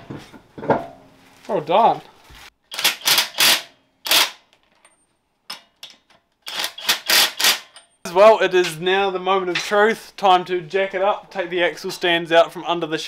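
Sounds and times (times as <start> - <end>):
impact wrench hammering: 6.5 - 8.0.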